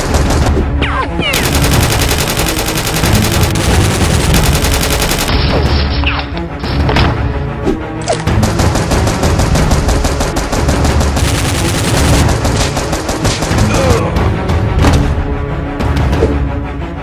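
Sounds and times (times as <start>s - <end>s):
machine-gun fire: 0.0s - 0.6s, 1.3s - 5.3s, 8.3s - 13.8s.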